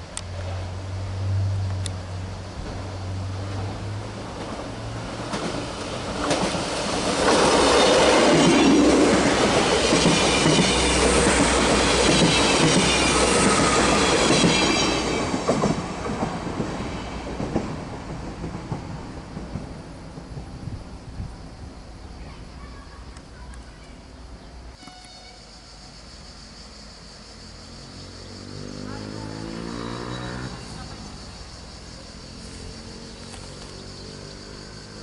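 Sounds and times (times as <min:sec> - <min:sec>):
train passing at speed: 0:00.0 - 0:35.0
wheels clacking over rail joints: 0:02.6 - 0:20.8.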